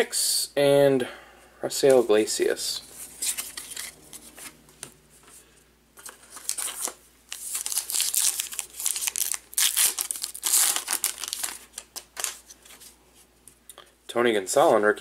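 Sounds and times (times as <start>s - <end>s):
foil wrapper crinkling and tearing: 6.2s - 12.6s.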